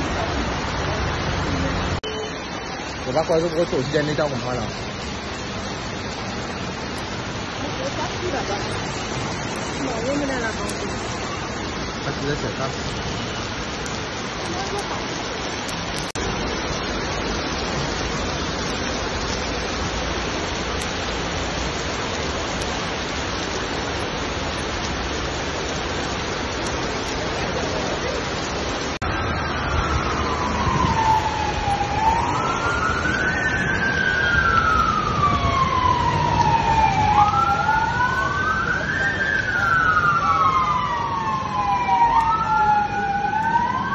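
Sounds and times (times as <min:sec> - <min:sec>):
torrential rain on street: 0:00.0 - 0:43.9
fire engine siren wailing: 0:26.6 - 0:43.9.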